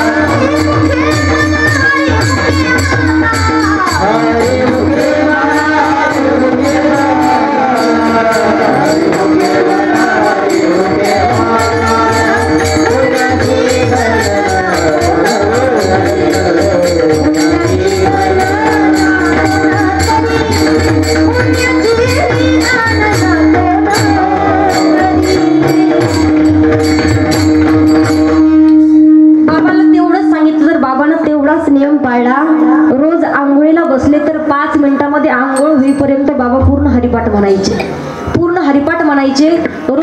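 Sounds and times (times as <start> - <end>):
devotional singing: 0.0 - 28.4
drum: 0.0 - 28.8
brass hand cymbals ringing: 0.0 - 29.3
held drone: 2.1 - 28.8.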